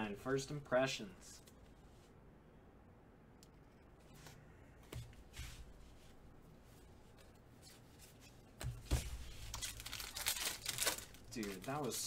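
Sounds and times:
trading cards rustling: 0:07.1 - 0:12.0.

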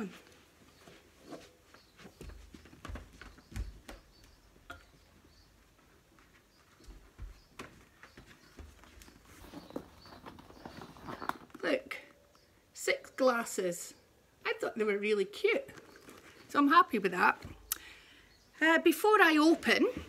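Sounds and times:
faint footsteps: 0:00.0 - 0:11.6.

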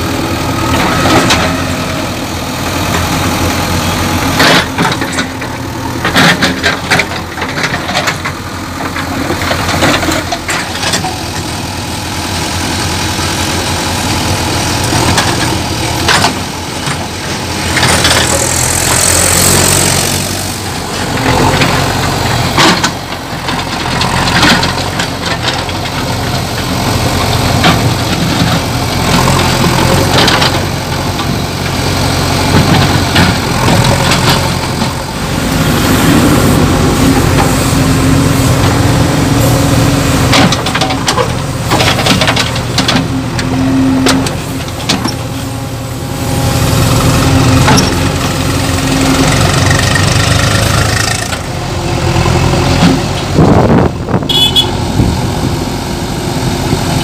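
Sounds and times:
diesel engine running: 0:00.0 - 0:57.0
backhoe arm clanking: 0:00.2 - 0:12.4, 0:13.1 - 0:55.6.

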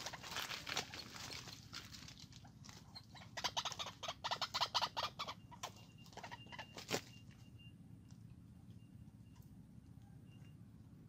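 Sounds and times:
bird clucking and squawking: 0:02.8 - 0:07.0.

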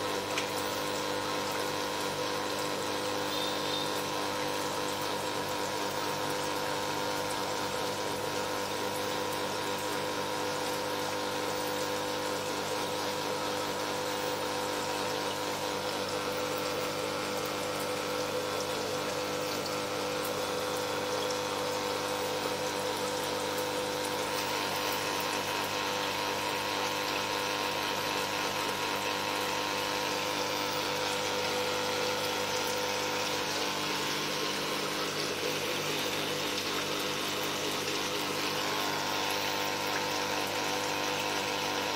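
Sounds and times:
water pump humming: 0:00.0 - 0:41.9.

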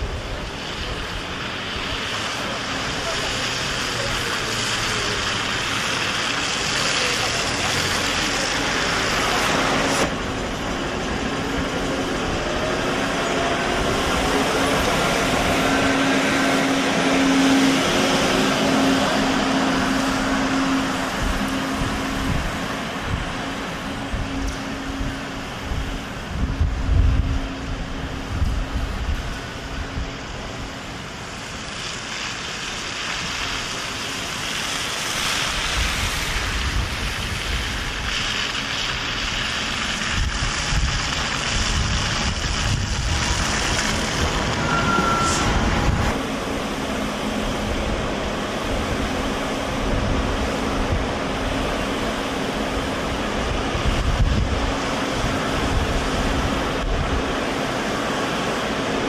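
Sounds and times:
buses moving over slushy road: 0:00.0 - 0:59.0
wind buffeting microphone: 0:09.8 - 0:30.7, 0:35.5 - 0:44.6, 0:45.4 - 0:58.0
brief high squeak: 0:44.5 - 0:45.7.

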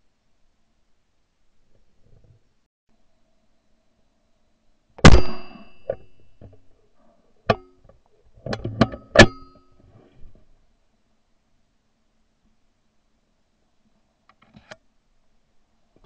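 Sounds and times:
shotgun shot: 0:05.0 - 0:05.9.

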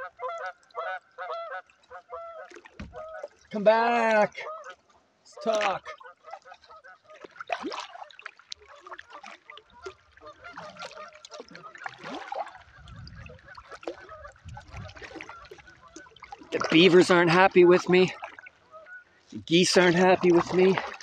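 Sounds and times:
geese honking: 0:00.0 - 0:03.3, 0:08.7 - 0:20.7
canoe paddling: 0:00.0 - 0:21.0.

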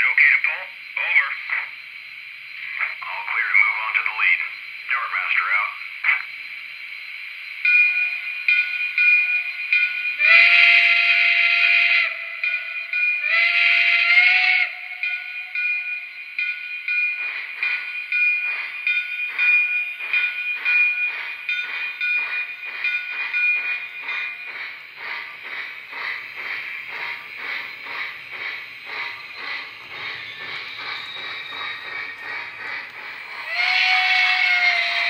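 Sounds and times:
model train chuffing: 0:07.5 - 0:35.0.

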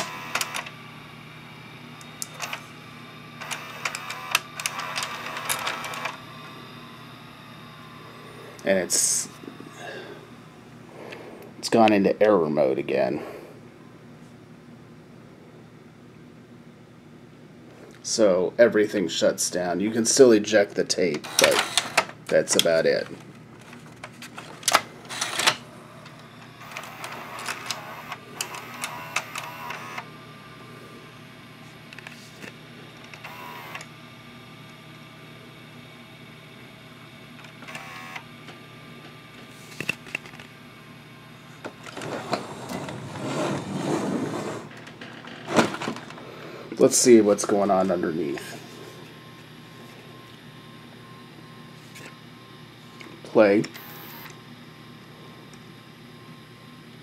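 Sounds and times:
small motor whirring: 0:00.0 - 0:00.7, 0:02.0 - 0:08.6, 0:21.2 - 0:22.1, 0:25.1 - 0:25.6, 0:26.4 - 0:30.1, 0:33.0 - 0:33.9, 0:37.5 - 0:38.3
tape mechanism motor hum: 0:00.0 - 0:12.4, 0:19.9 - 0:57.0.

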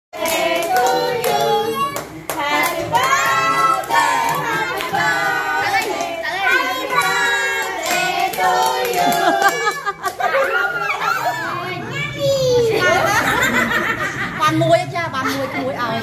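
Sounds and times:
people singing together: 0:00.2 - 0:10.7.

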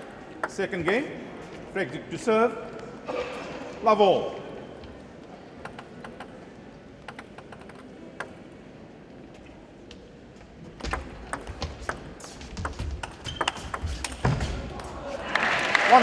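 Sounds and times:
table tennis ball clicking: 0:05.6 - 0:06.4, 0:07.0 - 0:08.4, 0:10.8 - 0:14.2.

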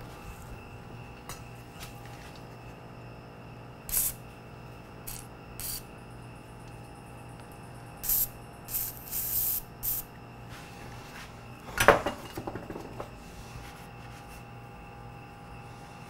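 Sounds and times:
short hissing sprays: 0:03.9 - 0:04.2, 0:05.1 - 0:05.8, 0:08.0 - 0:10.1.

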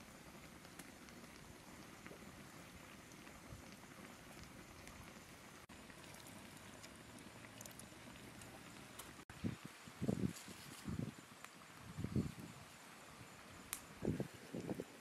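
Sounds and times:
water trickling into a mortar: 0:00.1 - 0:09.0.

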